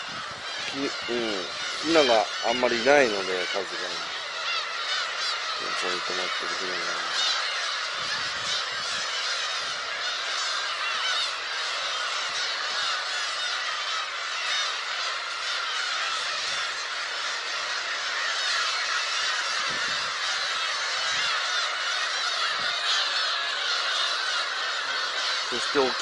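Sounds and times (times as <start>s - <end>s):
gulls mewing calls: 0.0s - 26.0s.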